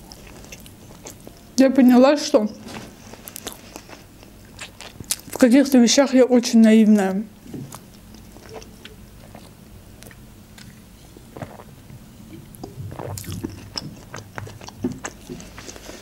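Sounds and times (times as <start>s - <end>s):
person swallowing: 11.3s - 15.4s
person gulping: 11.3s - 15.6s.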